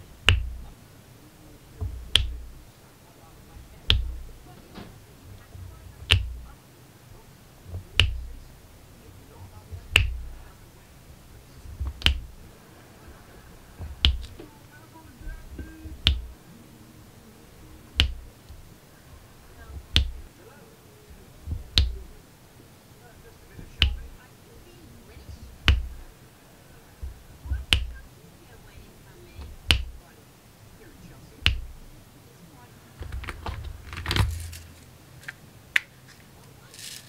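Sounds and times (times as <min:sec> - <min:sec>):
drill pen clicking taps: 0:01.8 - 0:02.6, 0:06.0 - 0:06.5, 0:09.7 - 0:10.3, 0:13.8 - 0:14.4, 0:15.6 - 0:16.4, 0:18.0 - 0:18.6, 0:19.7 - 0:20.3, 0:21.5 - 0:22.1, 0:23.8 - 0:24.1, 0:25.5 - 0:26.0, 0:27.0 - 0:28.0.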